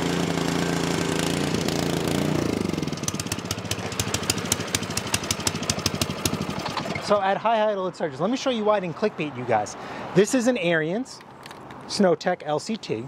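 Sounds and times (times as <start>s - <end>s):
snowblower engine surging: 0.0s - 7.2s.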